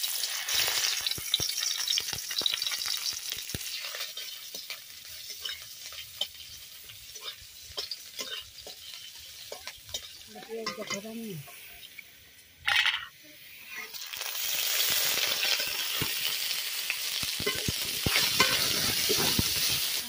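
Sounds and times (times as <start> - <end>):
onions sizzling in hot oil: 0.0 - 20.0
metal spatula scraping a pan: 0.5 - 12.0, 17.4 - 20.0.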